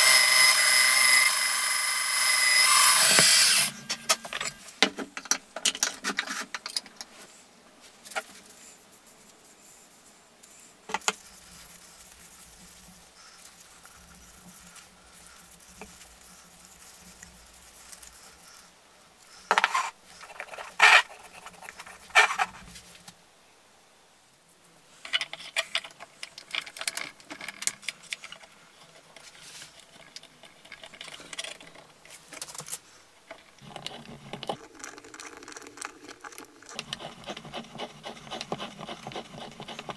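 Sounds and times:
light rubbing and rattling: 10.4s - 18.7s, 19.4s - 23.1s, 24.9s - 39.9s.

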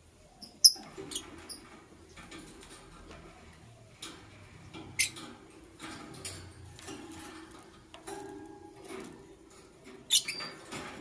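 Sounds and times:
lovebird chirping: 0.4s - 1.6s.

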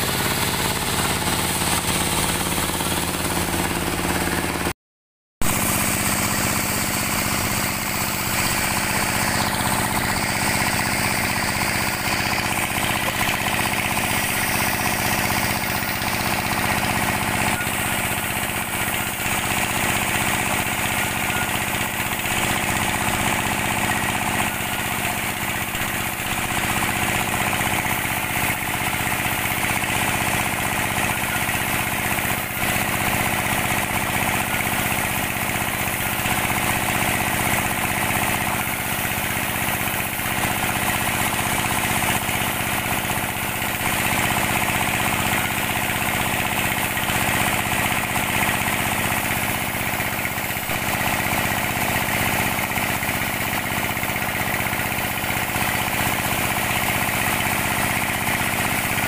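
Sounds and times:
band saw running: 0.0s - 4.7s, 5.4s - 59.0s
machinery whirr: 0.0s - 4.7s, 5.4s - 22.4s.

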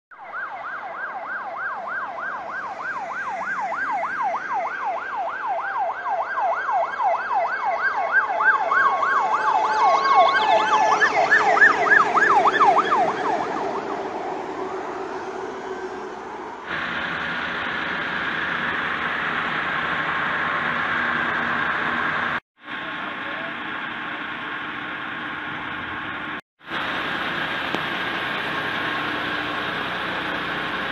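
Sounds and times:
fire engine siren yelping: 0.1s - 30.9s
higher siren: 0.1s - 30.9s
two-note siren tone: 8.3s - 13.8s.

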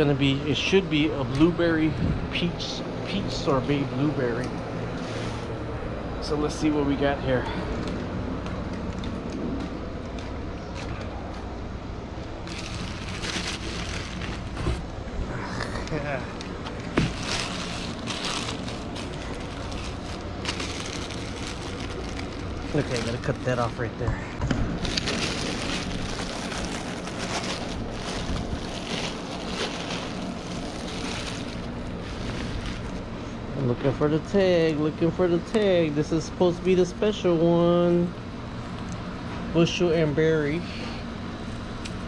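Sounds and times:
low steady rumble: 0.0s - 42.0s
wind rumble on microphone: 1.9s - 2.4s
plastic bag crinkling: 12.4s - 14.9s, 16.3s - 23.8s, 24.8s - 33.1s.

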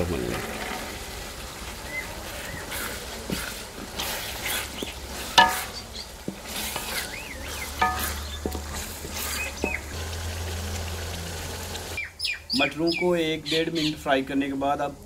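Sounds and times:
peas sizzling in oil: 0.0s - 13.4s
spoon scraping pot: 2.4s - 10.0s
spoon knocking against pot: 5.4s - 5.8s, 7.8s - 8.8s.

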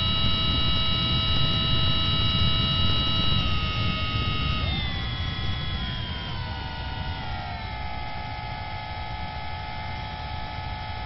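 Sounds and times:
model airplane motor whine: 0.0s - 11.0s.

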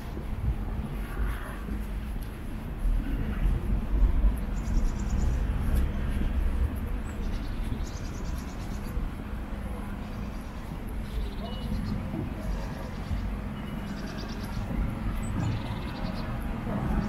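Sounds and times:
low street rumble: 0.0s - 17.0s
high bird trills: 10.1s - 16.4s.

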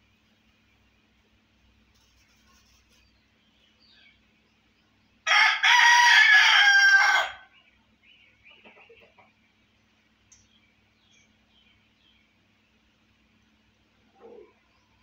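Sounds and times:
rooster crowing: 5.2s - 7.5s.

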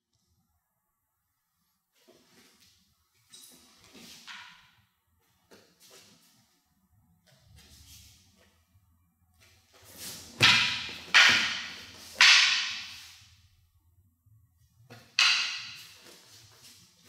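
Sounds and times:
wooden swords clacking: 3.3s - 4.8s, 9.7s - 13.3s, 14.9s - 17.0s.

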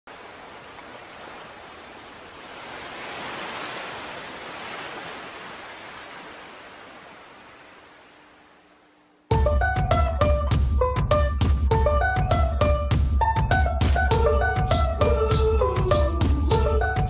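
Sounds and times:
surf washing onto beach: 0.1s - 8.7s.

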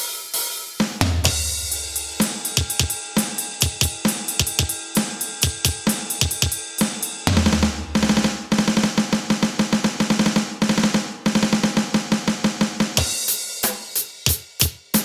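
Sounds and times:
drum beat: 0.7s - 15.0s
bass drum and crash cymbal hit: 0.8s - 13.9s.

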